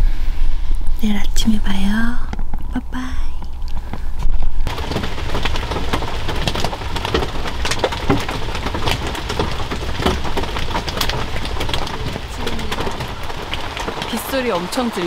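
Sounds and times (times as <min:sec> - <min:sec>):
heavy rain on tent fabric: 0:04.6 - 0:15.0.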